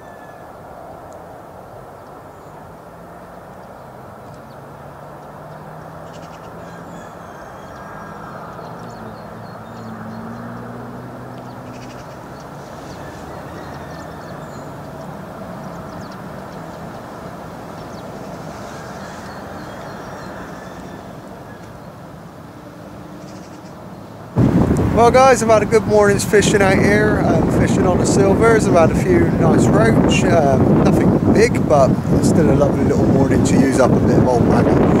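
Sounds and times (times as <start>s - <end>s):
small birds chirping: 3.5s - 24.3s
low engine-like rumble: 24.4s - 35.0s.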